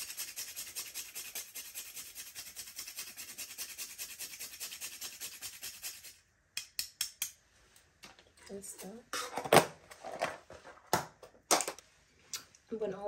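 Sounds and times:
nutmeg rasping on metal grater: 0.0 - 6.2.

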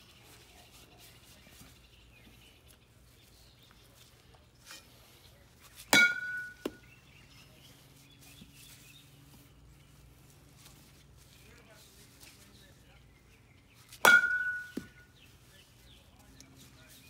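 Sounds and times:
metal bat hitting ball: 5.9 - 6.8, 14.0 - 15.0.

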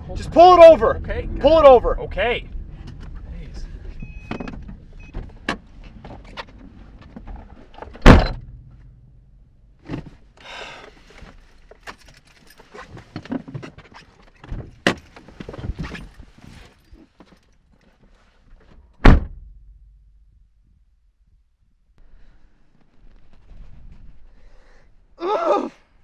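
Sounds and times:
clicks and rustles of people moving: 2.8 - 8.0, 9.8 - 19.0
car door slamming: 7.9 - 9.1, 19.0 - 19.7.

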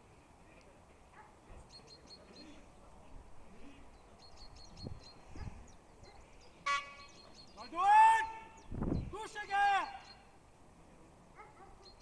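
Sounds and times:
small bird chirping: 1.6 - 2.6, 3.9 - 7.7, 11.8 - 12.0.

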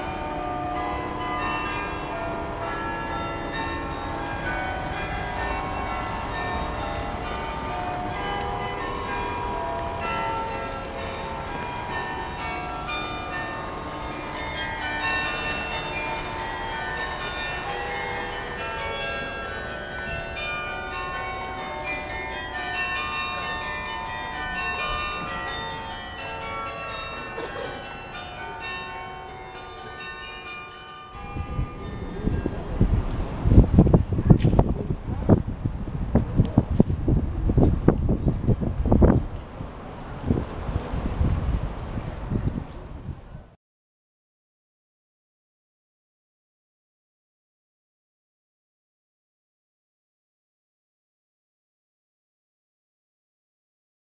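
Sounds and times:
church bells ringing: 0.0 - 35.4.

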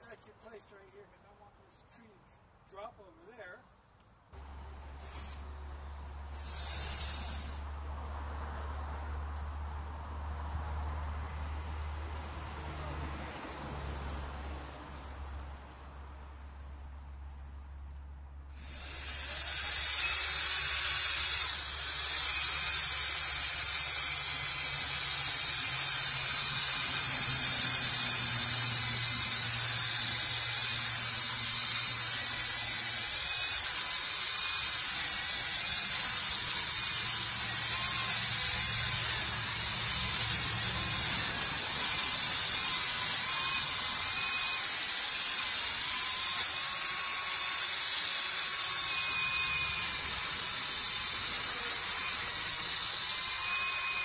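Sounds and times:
chainsaw cutting wood: 5.0 - 5.5, 6.3 - 7.8, 18.5 - 54.0.

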